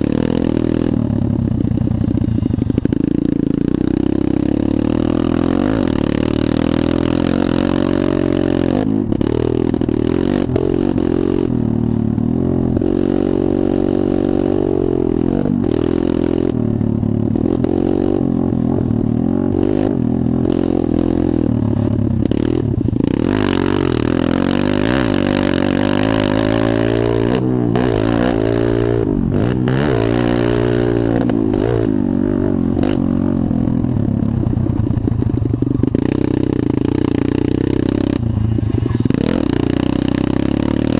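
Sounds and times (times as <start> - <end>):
dirt bike engine revving: 0.0 - 40.9.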